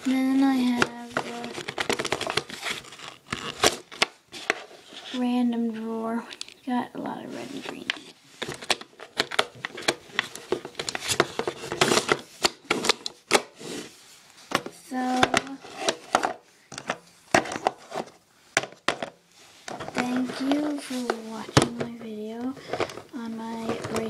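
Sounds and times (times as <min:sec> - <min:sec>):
plastic boxes knocking on wooden table: 0:18.6 - 0:20.0.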